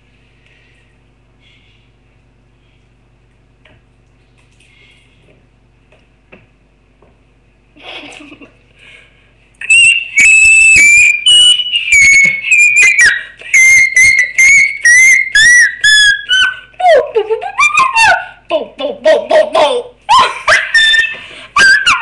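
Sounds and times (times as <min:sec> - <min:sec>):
high-pitched whistling: 0:09.6 - 0:16.5.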